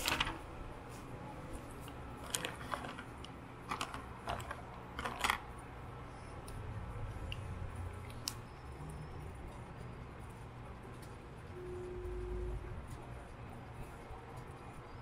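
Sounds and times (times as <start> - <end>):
notebook paper rustling: 0.0 - 5.4
steady low hum: 0.0 - 15.0.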